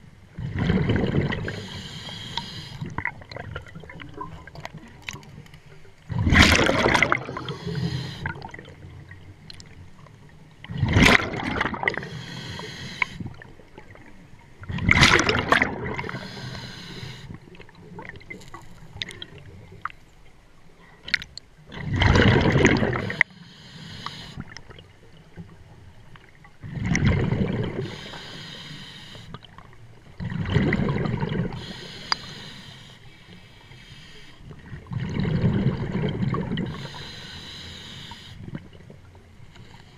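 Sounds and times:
exhaled bubbles gurgling underwater: 0.0 - 20.0, 21.0 - 39.9.

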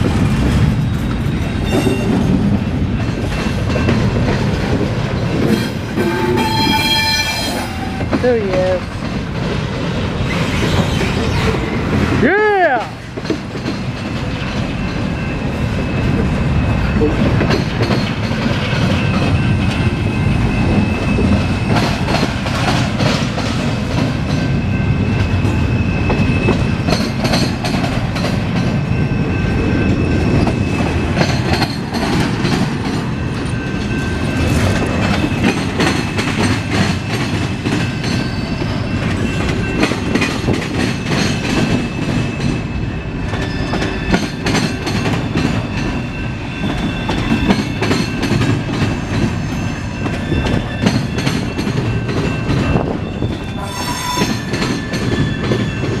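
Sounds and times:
wheels clacking over rail joints: 0.0 - 42.6, 43.2 - 53.6
freight train rumble: 0.0 - 56.0
wheel squeal on rail: 0.7 - 2.5, 5.4 - 8.3, 10.2 - 12.1, 14.8 - 22.8, 24.3 - 27.8, 28.7 - 32.6, 33.4 - 56.0.

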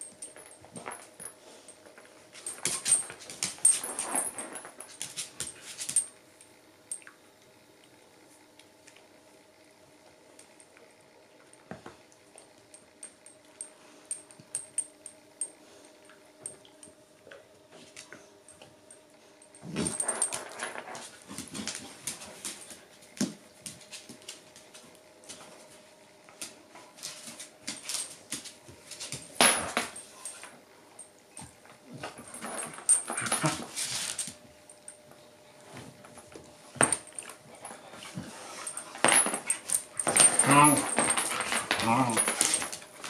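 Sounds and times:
dogs growling roughly: 40.0 - 42.4.

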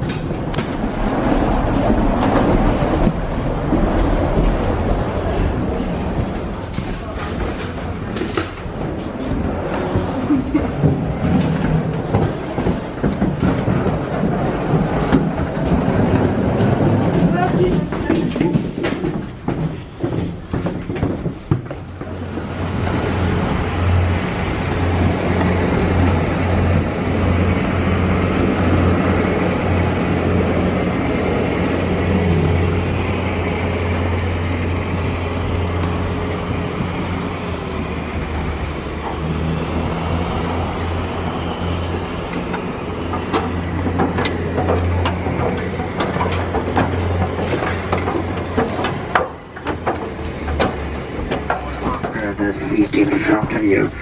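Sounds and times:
jet aircraft rumble and whine: 0.0 - 54.0.

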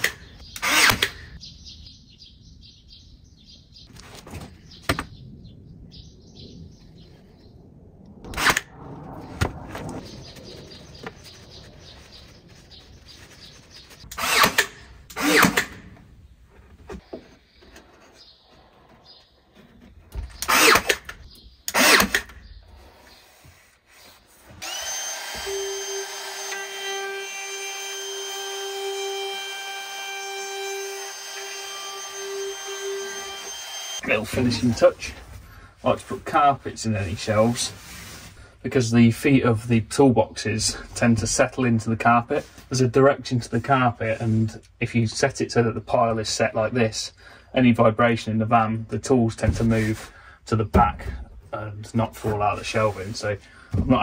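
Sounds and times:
cordless drill driving screws: 0.0 - 1.2, 14.1 - 15.8, 20.4 - 21.1, 21.7 - 22.3, 24.6 - 34.0
router whining: 0.0 - 1.3, 9.4 - 15.8, 20.2 - 21.1, 24.6 - 34.7.

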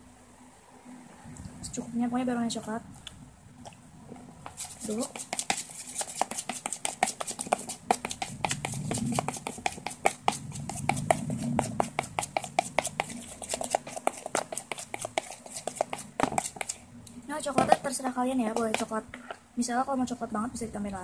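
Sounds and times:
spoon stirring slime clicking: 4.4 - 16.8, 17.7 - 19.4.

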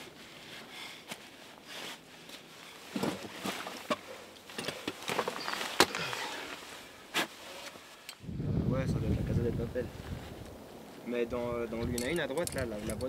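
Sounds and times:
climbing gear clicking on rock: 11.9 - 13.0.

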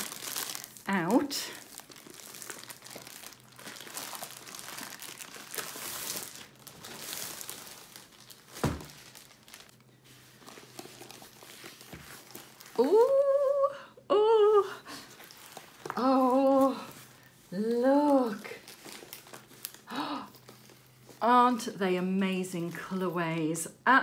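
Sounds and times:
plastic sleeve crinkling: 0.0 - 13.4, 14.9 - 21.2
stiff paper rustling: 1.6 - 13.1, 14.9 - 21.2
woman saying ooh: 12.8 - 14.8.

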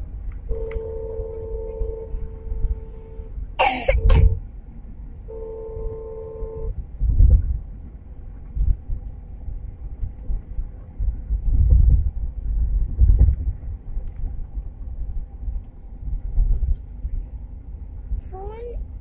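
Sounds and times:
road noise: 0.0 - 19.0
wind buffeting microphone: 5.7 - 19.0.

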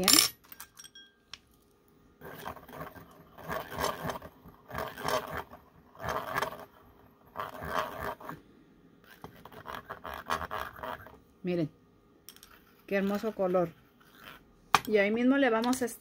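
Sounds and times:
whisk stirring powder in glass bowl: 2.2 - 8.4, 9.0 - 11.2, 12.4 - 15.0.

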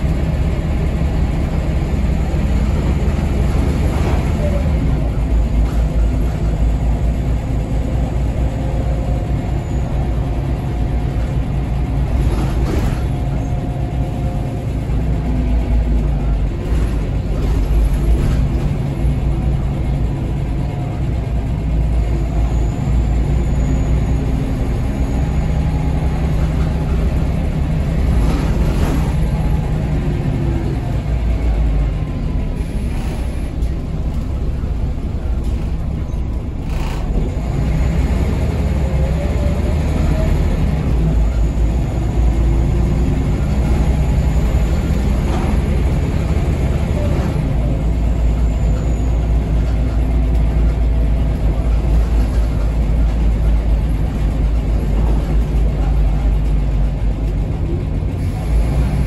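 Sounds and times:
bus engine rumbling: 0.0 - 59.0
bus body knocks and rattles: 11.2 - 13.6.

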